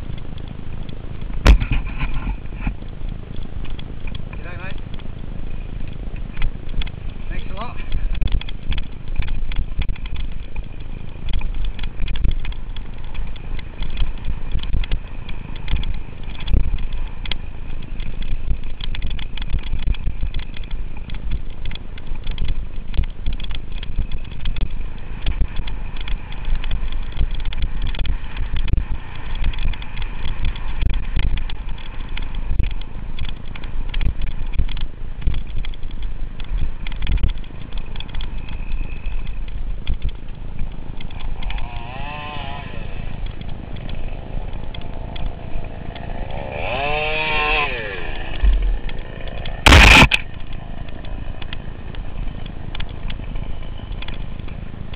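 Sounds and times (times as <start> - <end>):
bike rattling and knocking: 0.0 - 54.9
bike tyre noise: 0.0 - 54.9
wind rushing on microphone: 0.0 - 54.9.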